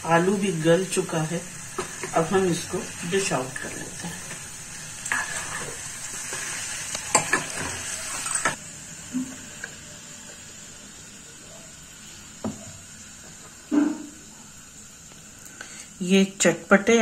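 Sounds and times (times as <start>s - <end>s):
spoon scraping food from pan: 5.0s - 8.6s
spoon clinking on pan and plate: 7.1s - 8.6s.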